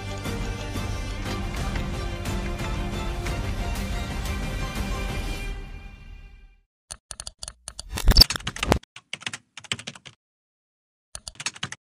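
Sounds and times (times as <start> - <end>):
keyboard typing: 6.9 - 10.2, 11.2 - 11.8.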